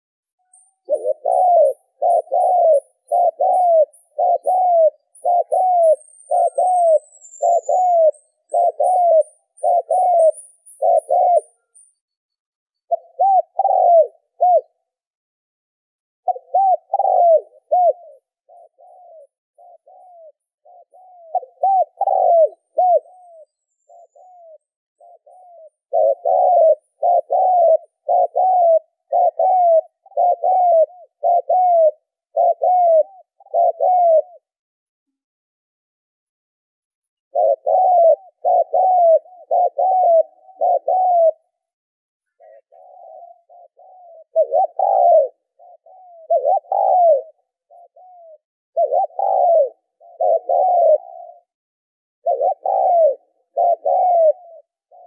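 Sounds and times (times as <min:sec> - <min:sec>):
small bird chirping: 0:00.4 - 0:13.6, 0:18.1 - 0:27.5
dove cooing: 0:00.5 - 0:11.8, 0:12.8 - 0:15.0, 0:16.2 - 0:34.6, 0:37.3 - 0:51.6, 0:52.2 - 0:55.0.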